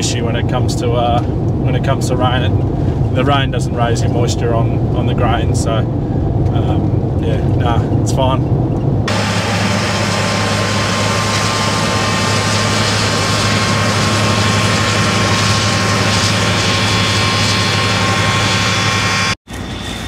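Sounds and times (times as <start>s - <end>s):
combine harvester running: 9.0s - 20.0s.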